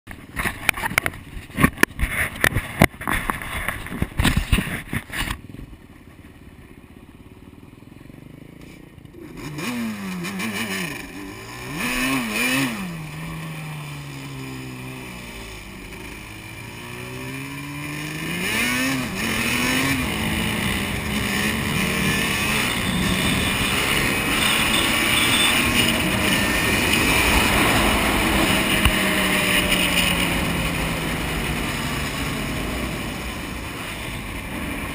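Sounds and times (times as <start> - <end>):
quad engine revving: 9.0 - 34.9.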